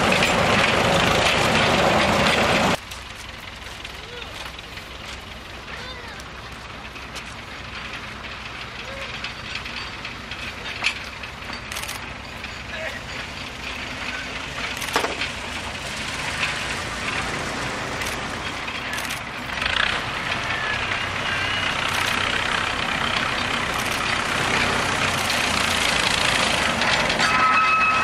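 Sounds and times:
diesel locomotive engine: 0.0s - 28.0s
rumble of wagons: 0.0s - 28.0s
scattered clicks: 8.8s - 12.2s, 14.6s - 15.3s, 18.0s - 19.4s, 21.8s - 22.5s, 23.7s - 24.2s
high-pitched squeal: 23.8s - 28.0s.

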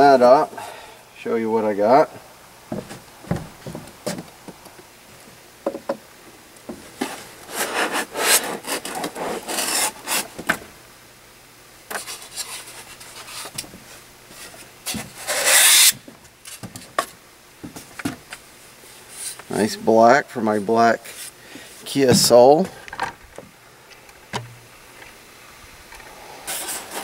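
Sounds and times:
cardboard scraping and rasping: 6.9s - 10.4s, 12.0s - 16.0s, 26.5s - 27.0s.

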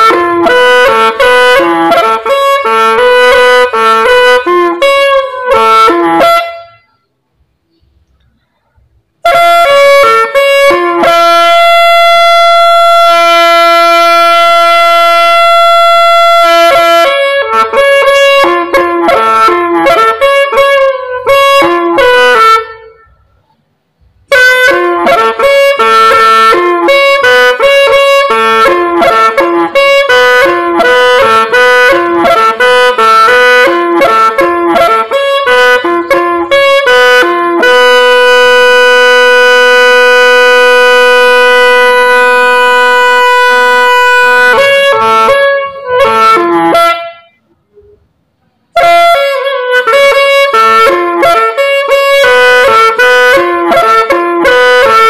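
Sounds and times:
bamboo pipe playing slow tune: 0.0s - 7.1s, 7.7s - 55.0s.

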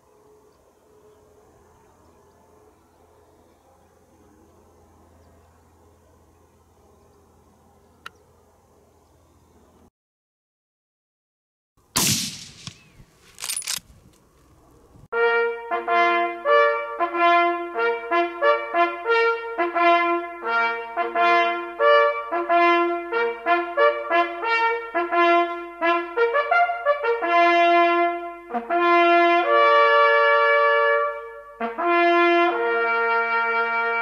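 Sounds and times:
solo brass fanfare: 15.1s - 34.0s.

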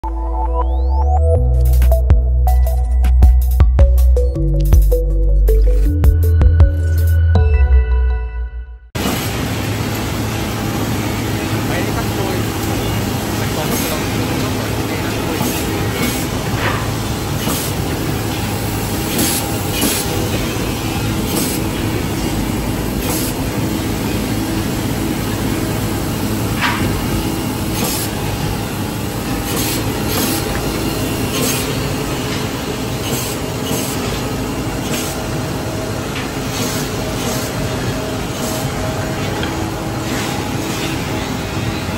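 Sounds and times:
woodworking machinery din: 9.0s - 41.9s.

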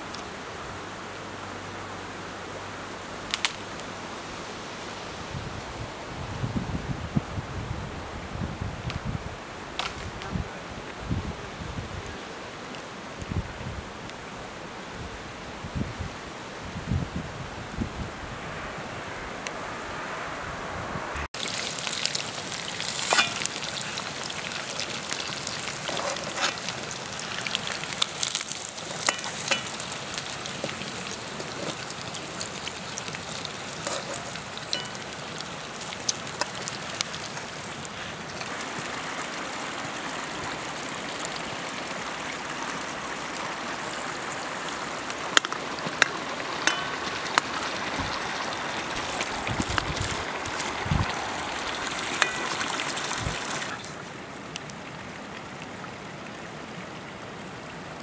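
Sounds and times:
fire crackling and popping: 3.3s - 3.9s, 21.2s - 40.0s, 45.0s - 54.8s
meat sizzling in oil: 21.4s - 38.6s, 46.0s - 53.8s.

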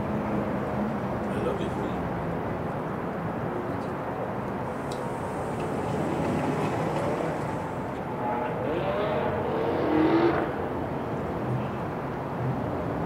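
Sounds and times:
urban traffic noise: 0.0s - 13.0s
motor vehicle passing: 4.7s - 10.8s.

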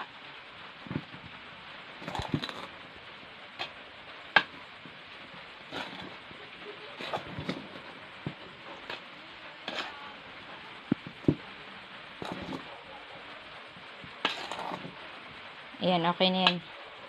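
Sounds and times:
metal spoon stirring in metal bowl: 2.0s - 2.8s, 5.6s - 12.8s, 14.2s - 15.0s.

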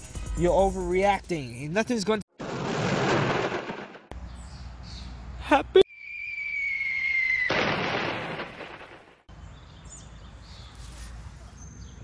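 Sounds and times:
explosion blast: 2.4s - 4.1s, 7.5s - 9.1s
falling whistle: 5.9s - 7.8s.

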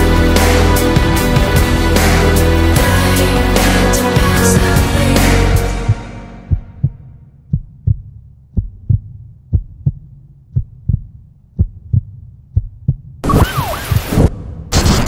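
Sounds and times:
music echo: 0.0s - 6.9s
heartbeat thumps: 5.6s - 13.2s.

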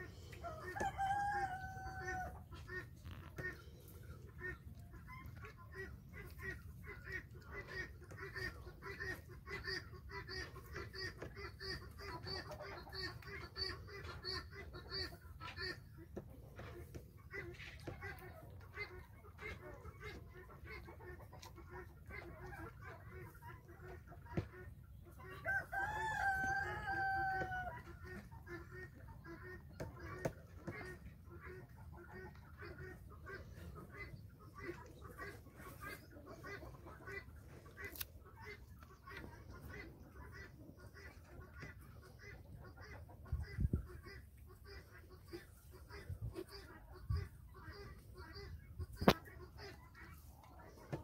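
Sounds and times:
chickens clucking: 0.0s - 51.0s
rooster crowing: 0.8s - 2.3s, 25.4s - 27.7s.

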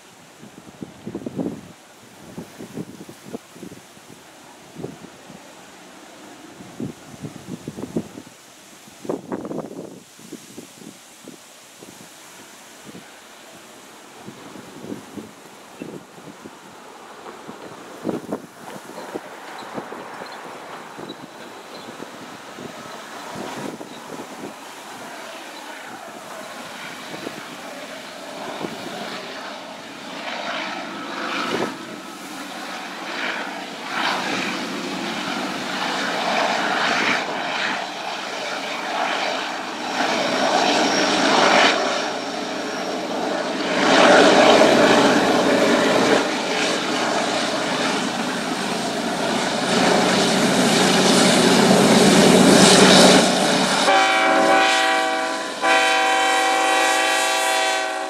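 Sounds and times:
diesel locomotive engine drone: 11.6s - 58.0s.

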